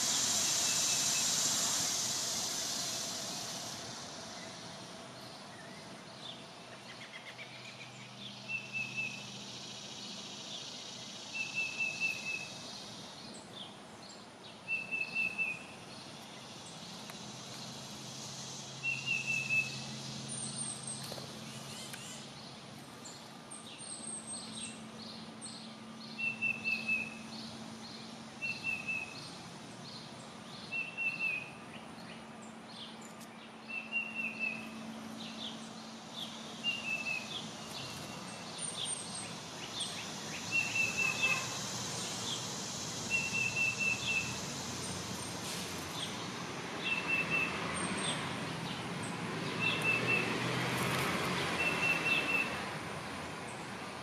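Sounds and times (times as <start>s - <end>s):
rapid bird chips: 0.0s - 4.9s
steady background hiss: 0.0s - 54.0s
faint high bird twitters: 36.7s - 42.4s.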